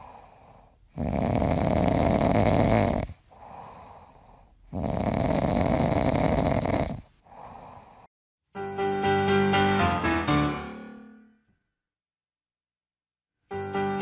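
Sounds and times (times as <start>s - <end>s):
dog snoring: 0.0s - 4.0s, 4.6s - 8.0s.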